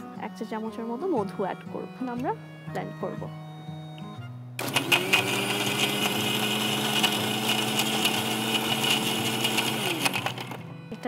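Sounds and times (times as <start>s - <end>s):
blender motor whine: 4.6s - 10.7s.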